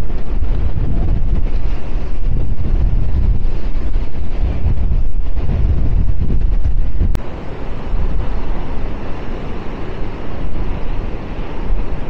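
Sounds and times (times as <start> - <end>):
steady rush of wind: 0.0 - 12.0
wind buffeting microphone: 0.0 - 12.0.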